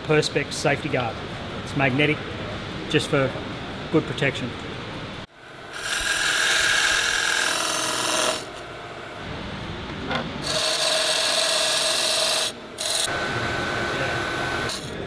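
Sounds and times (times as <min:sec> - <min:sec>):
chisel cutting wood on a lathe: 0:05.7 - 0:08.6, 0:10.4 - 0:15.0.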